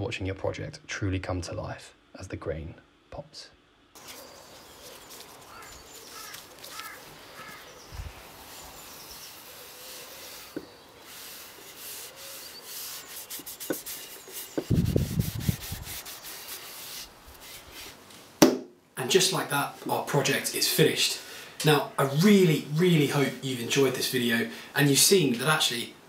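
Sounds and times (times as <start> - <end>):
cloth wiping wood: 4.0 - 18.0
cloth and glove rustling: 4.0 - 18.4.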